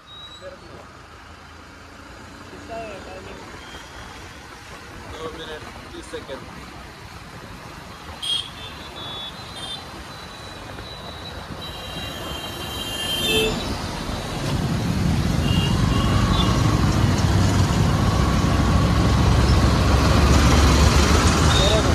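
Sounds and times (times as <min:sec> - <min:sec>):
motorcycle riding in traffic: 0:00.0 - 0:21.9
vehicle horn toots: 0:08.2 - 0:09.8, 0:11.6 - 0:13.7, 0:15.4 - 0:16.6.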